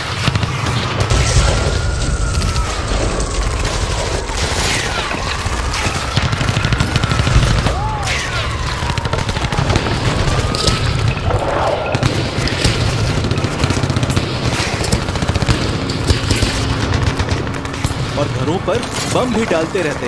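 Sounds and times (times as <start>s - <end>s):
explosions: 0.0s - 20.0s
rapid machine-gun fire: 0.0s - 20.0s
wailing rising and falling tone: 1.2s - 12.0s
falling whistles: 1.3s - 6.1s.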